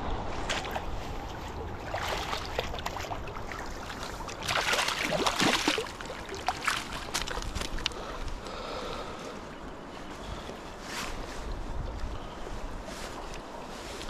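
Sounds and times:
water splashing: 0.5s - 8.0s
sharp water drips and plops: 1.9s - 8.0s.

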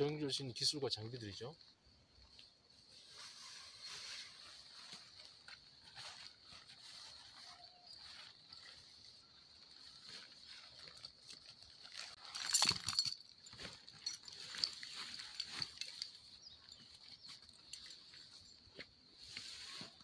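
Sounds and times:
nylon poncho rustling: 2.9s - 18.6s.

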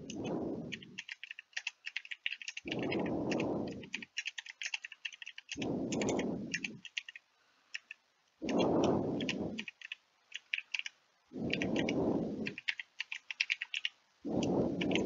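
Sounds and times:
low rush of noise: 0.0s - 1.0s, 2.6s - 4.1s, 5.5s - 10.3s, 11.0s - 12.8s, 13.5s - 15.0s
computer keyboard typing: 0.0s - 15.0s.

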